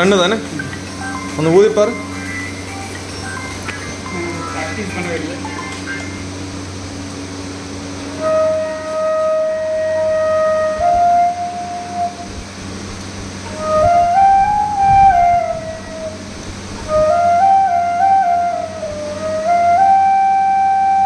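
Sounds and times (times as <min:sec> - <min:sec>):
bamboo flute playing: 0:08.1 - 0:12.5, 0:13.4 - 0:21.0.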